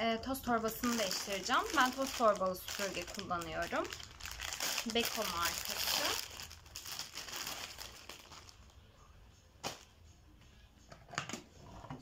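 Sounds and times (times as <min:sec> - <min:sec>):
plastic bag rustling: 0:00.5 - 0:08.8.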